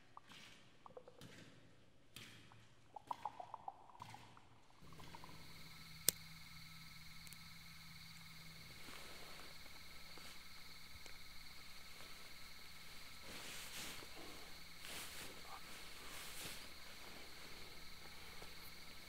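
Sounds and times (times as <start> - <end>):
crickets trilling: 4.8 - 19.0.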